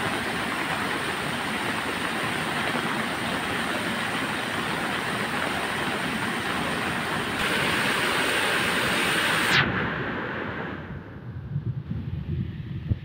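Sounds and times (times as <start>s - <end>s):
wind buffeting microphone: 10.8s - 13.0s.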